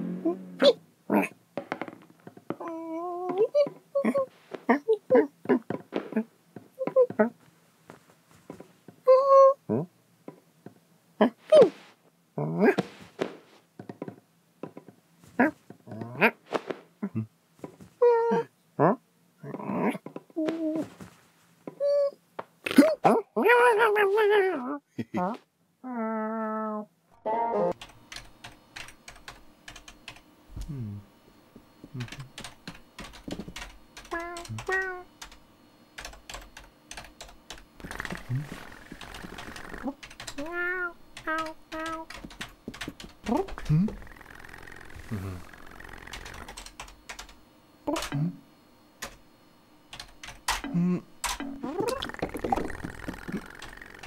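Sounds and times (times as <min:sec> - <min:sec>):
wavering vocal sound: 0:00.0 - 0:01.3, 0:43.6 - 0:46.5
cartoon vocal noises: 0:00.0 - 0:01.4, 0:02.5 - 0:07.4, 0:15.4 - 0:16.4, 0:18.0 - 0:21.0, 0:21.8 - 0:26.9, 0:37.8 - 0:42.1, 0:43.3 - 0:46.5, 0:50.7 - 0:54.0
computer keyboard typing: 0:27.8 - 0:30.2, 0:31.9 - 0:35.4, 0:36.0 - 0:40.5, 0:41.2 - 0:48.2, 0:49.0 - 0:49.2, 0:49.9 - 0:54.0.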